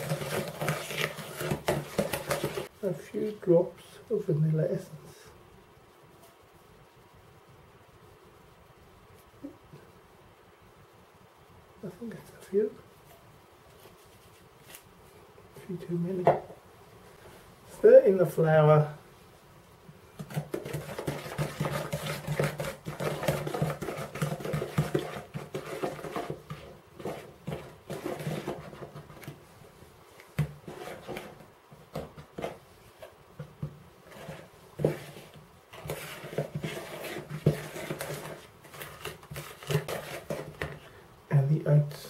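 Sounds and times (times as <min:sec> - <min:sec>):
spoon scraping in bowl: 0:34.0 - 0:40.7.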